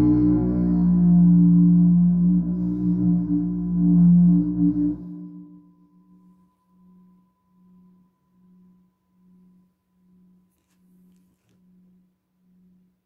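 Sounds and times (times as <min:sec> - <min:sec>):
didgeridoo drone: 0:00.0 - 0:05.7
faint pulsing low tone: 0:00.0 - 0:06.4.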